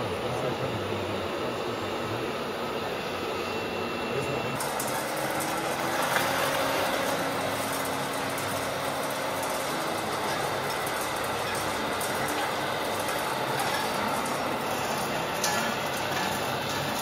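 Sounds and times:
people talking: 0.0s - 4.6s, 11.3s - 14.4s
model vehicles mechanical hum: 0.0s - 17.0s.

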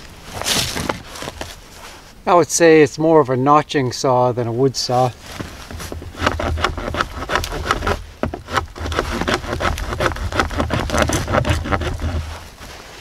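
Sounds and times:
knife sawing through wooden stick: 6.0s - 12.5s.

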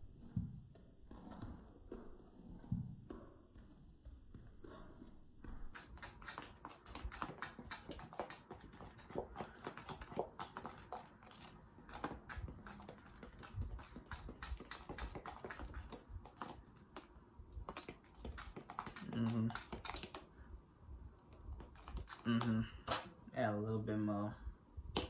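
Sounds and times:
utensil stirring flour: 5.8s - 20.3s, 21.3s - 23.1s.

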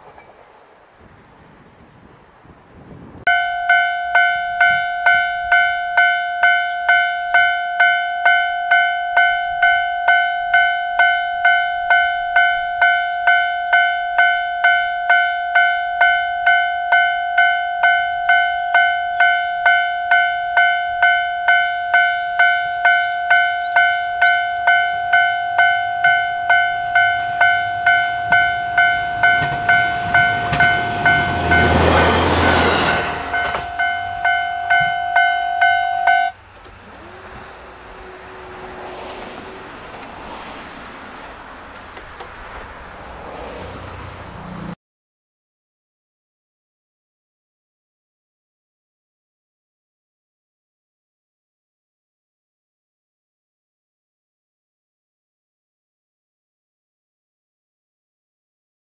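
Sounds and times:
railway crossing bell ringing: 3.3s - 42.2s
rushing noise: 26.4s - 44.8s.

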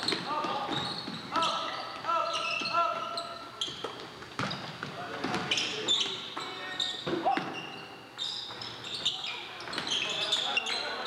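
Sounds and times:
basketball bouncing on gym floor: 0.0s - 1.6s, 3.6s - 5.6s.

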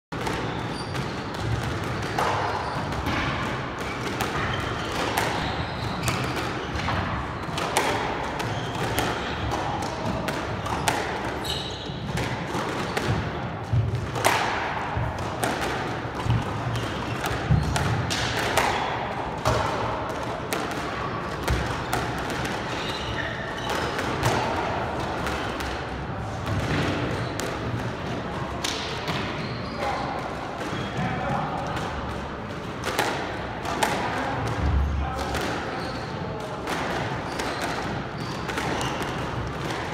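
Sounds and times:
shoes squeaking on wooden floor: 4.4s - 6.7s, 11.4s - 12.1s
squash ball knocks: 12.0s - 22.6s.

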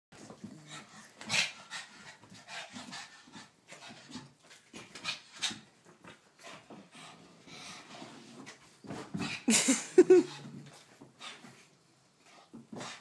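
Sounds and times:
dog panting: 0.2s - 8.5s.

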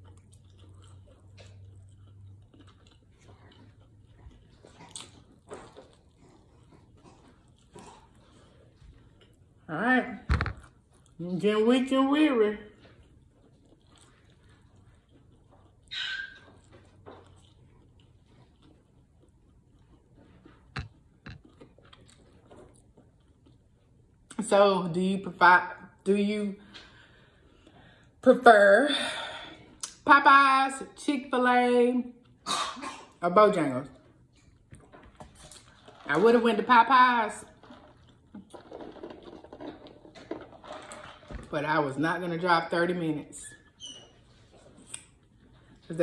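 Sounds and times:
chewing fried chicken: 0.0s - 9.8s, 10.6s - 24.4s, 32.0s - 32.5s, 33.8s - 41.4s, 43.6s - 46.0s.

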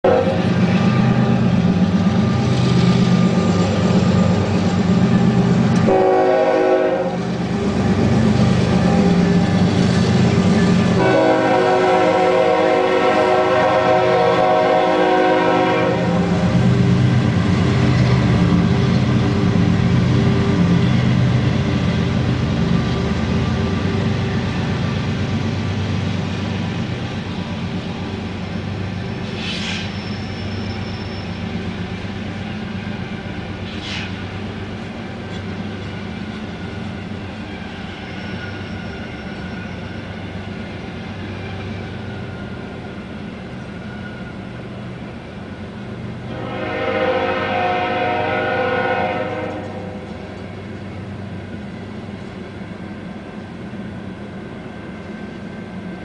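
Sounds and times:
train horn blasts: 0.0s - 0.4s, 5.8s - 7.3s, 10.9s - 16.5s, 46.3s - 50.1s
diesel locomotive engine rumble: 0.0s - 56.0s.

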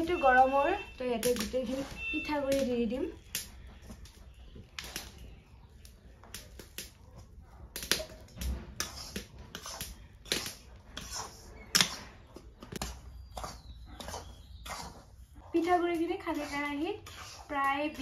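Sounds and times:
metal spatula scraping iron pan: 8.4s - 18.0s.

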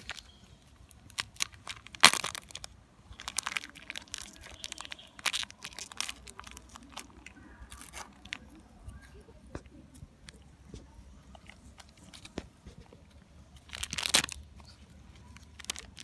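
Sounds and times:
foil snack packet crinkling: 0.0s - 9.2s, 13.6s - 16.0s.

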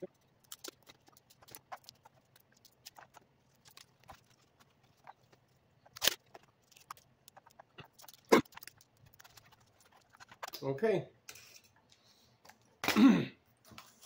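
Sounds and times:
small parts ticking and tapping: 0.0s - 10.7s.

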